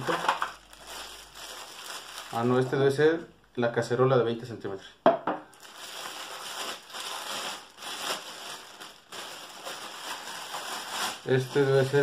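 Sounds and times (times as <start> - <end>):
plastic wrapping crinkling: 0.0 - 3.2, 5.5 - 12.0.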